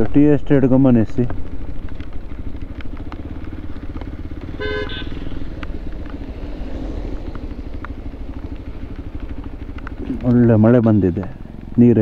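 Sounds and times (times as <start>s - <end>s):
motorcycle engine running: 0.0s - 12.0s
vehicle horn toot: 4.4s - 5.4s.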